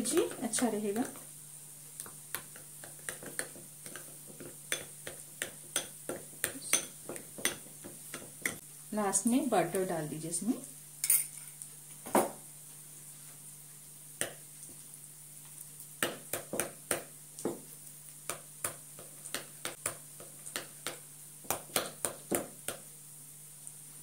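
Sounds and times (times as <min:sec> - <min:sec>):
spoon tapping against bowl: 0:02.3 - 0:08.6
metal spoon stirring in a bowl: 0:11.0 - 0:11.6.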